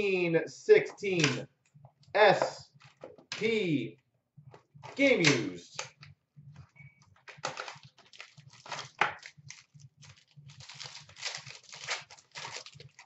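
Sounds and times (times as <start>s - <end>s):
wrapper and cardboard crinkling: 7.4s - 13.0s.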